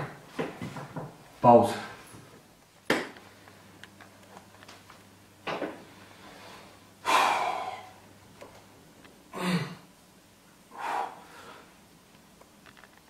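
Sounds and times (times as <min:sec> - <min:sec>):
man breathing forcefully: 0:06.0 - 0:08.0, 0:10.7 - 0:11.8.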